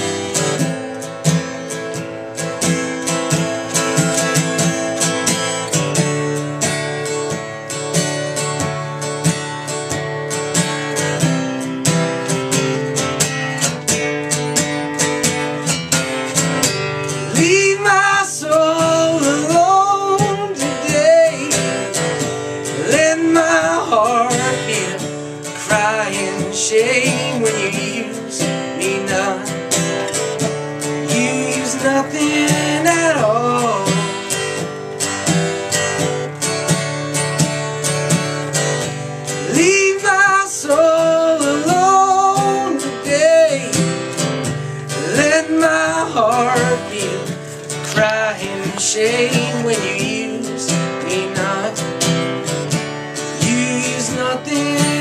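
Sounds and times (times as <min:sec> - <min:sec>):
acoustic guitar strumming: 0:00.0 - 0:55.0
person singing: 0:17.1 - 0:30.2, 0:30.8 - 0:34.4, 0:39.3 - 0:52.3, 0:53.2 - 0:55.0.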